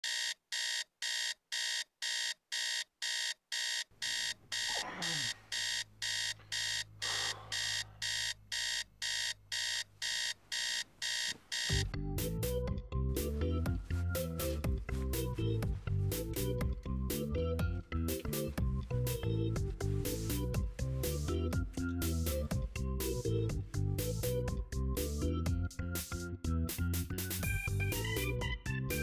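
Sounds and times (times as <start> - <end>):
digital alarm clock beeping: 0.0 - 4.7, 5.5 - 11.9
music: 11.8 - 29.0.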